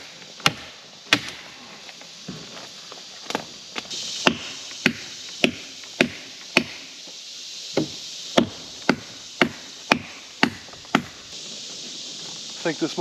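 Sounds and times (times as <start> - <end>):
hand tool chopping wood: 0.4 - 1.4, 4.2 - 6.8, 7.8 - 11.2.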